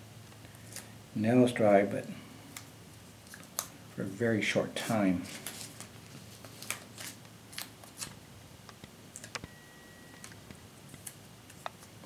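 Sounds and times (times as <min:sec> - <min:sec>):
paper rustling: 0:05.2 - 0:08.2
faint steady high tone: 0:09.4 - 0:10.4.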